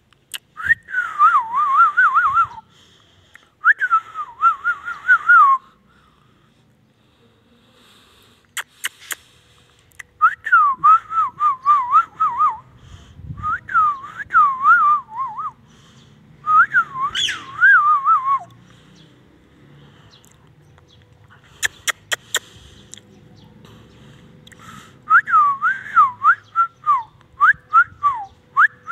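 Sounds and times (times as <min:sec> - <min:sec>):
sharp clicks: 0:08.4 - 0:10.2, 0:20.2 - 0:23.1
parakeet whistling: 0:17.1 - 0:17.7.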